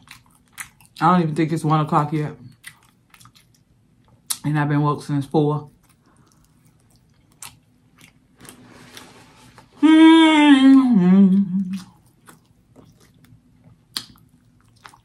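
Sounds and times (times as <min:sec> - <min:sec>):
person chewing and lip-smacking: 0:00.0 - 0:04.5, 0:05.6 - 0:08.6, 0:10.5 - 0:15.0
person humming mmm: 0:09.8 - 0:12.0.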